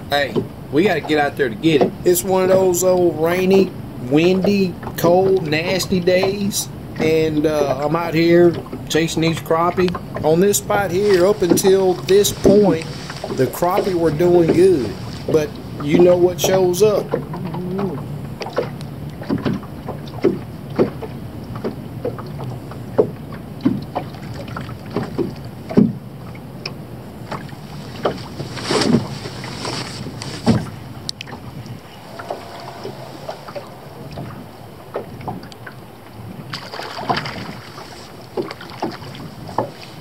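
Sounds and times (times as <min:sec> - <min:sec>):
water slapping boat hull: 0:00.0 - 0:40.0
wind rushing: 0:27.6 - 0:36.6.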